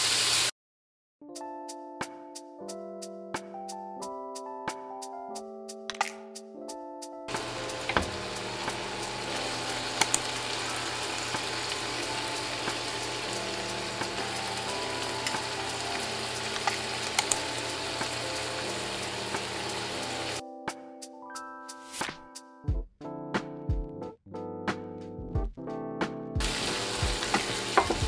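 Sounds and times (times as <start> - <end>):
meat sizzling in a frying pan: 0.0 - 0.5, 7.3 - 20.4, 26.4 - 28.0.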